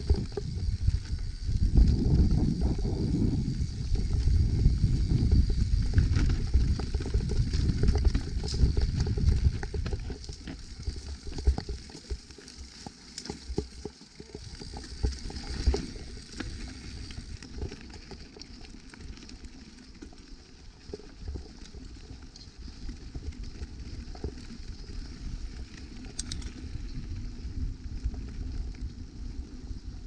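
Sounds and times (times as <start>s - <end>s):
wind rumble on microphone: 0.0s - 12.3s, 20.8s - 30.0s
bike rattling over bumps: 0.0s - 30.0s
bike tyres on dirt: 0.0s - 30.0s.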